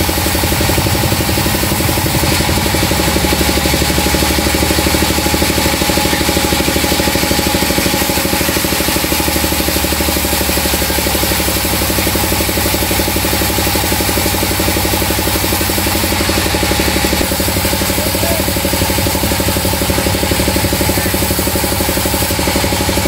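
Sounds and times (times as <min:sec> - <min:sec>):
band saw mill cutting log: 0:00.0 - 0:23.0.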